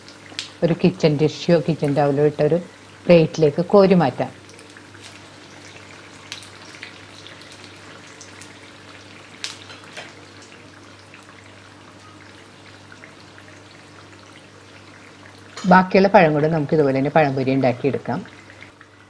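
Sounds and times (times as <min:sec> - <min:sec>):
fritters sizzling in oil: 0:00.0 - 0:19.0.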